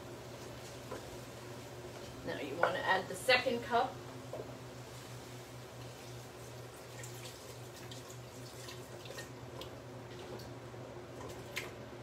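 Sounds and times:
steady low hum: 0:00.0 - 0:12.0
liquid pouring and splashing: 0:06.8 - 0:10.5.

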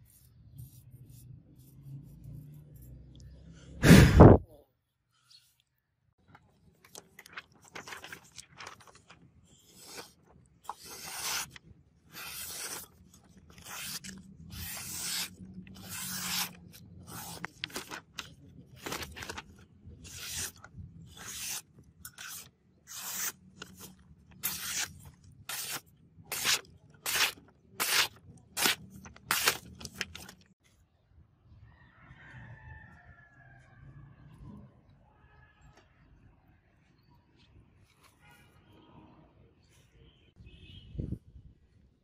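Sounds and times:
sword slicing through paper: 0:09.7 - 0:21.6, 0:22.2 - 0:30.4.

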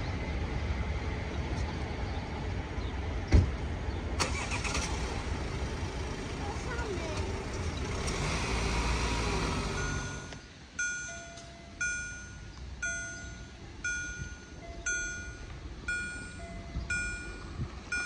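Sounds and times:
car pulling away: 0:04.2 - 0:10.4
level crossing warning bell: 0:09.6 - 0:18.0.

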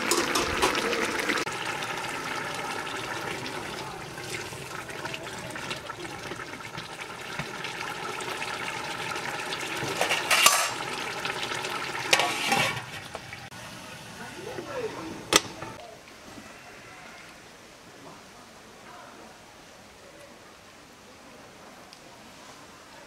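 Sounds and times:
metal lid clanks: 0:00.0 - 0:00.9, 0:09.9 - 0:10.8, 0:12.1 - 0:12.9
curry simmering and bubbling: 0:00.0 - 0:15.8.

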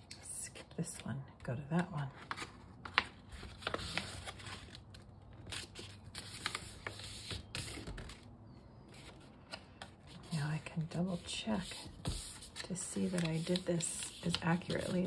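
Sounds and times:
paper plate crackling: 0:09.0 - 0:15.0.

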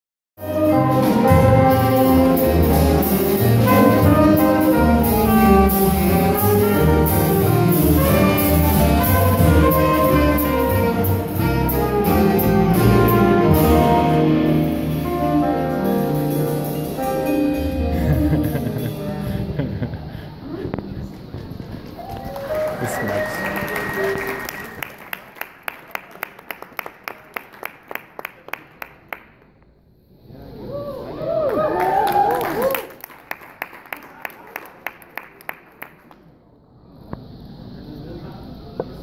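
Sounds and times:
small ensemble instrumental music: 0:00.4 - 0:20.2.

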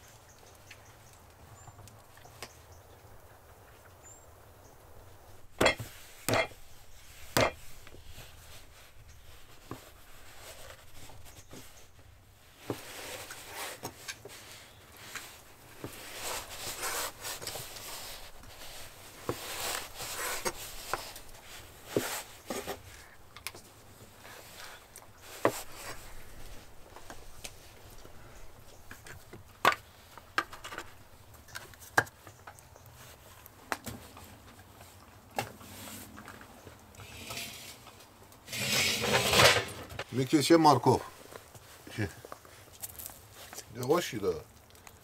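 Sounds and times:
rubbing and scraping: 0:05.6 - 0:23.1, 0:37.0 - 0:40.2
sharp wooden knocks: 0:07.4 - 0:07.6.

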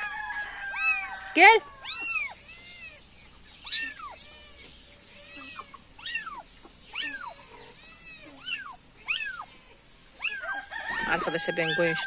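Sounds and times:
kitten meowing: 0:01.8 - 0:03.0, 0:03.6 - 0:10.4.

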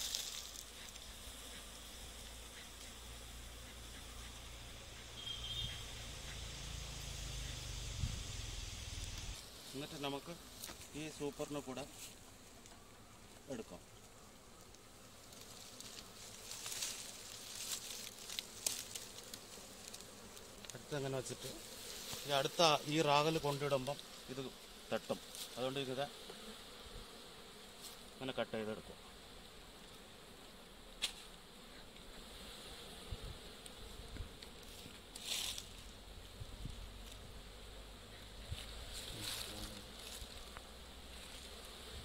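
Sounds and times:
bee smoker bellows hissing: 0:00.0 - 0:42.0.

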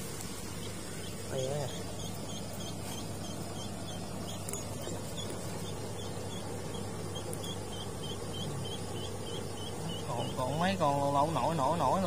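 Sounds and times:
low steady hum: 0:00.0 - 0:12.0
animal chirping: 0:00.6 - 0:12.0.

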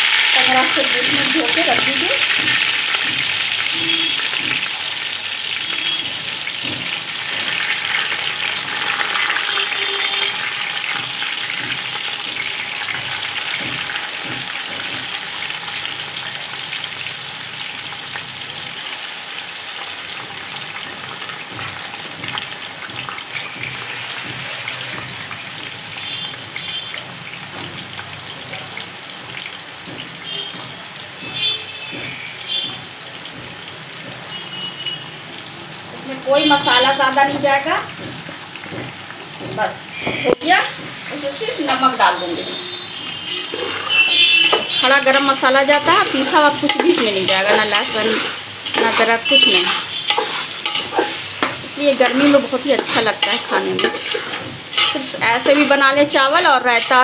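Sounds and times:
rice sizzling in hot oil: 0:00.0 - 0:57.0.

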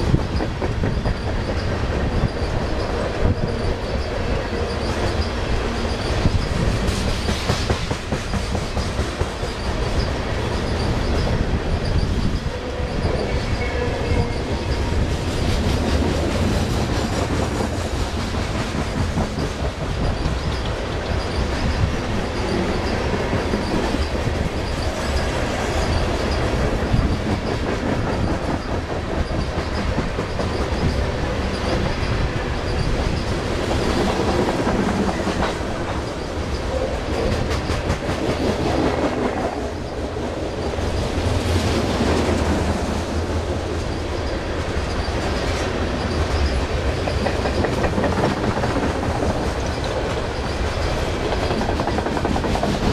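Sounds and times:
steel wheels rumbling on rail: 0:00.0 - 0:52.9
wheels clicking over rail joints: 0:00.0 - 0:52.9.

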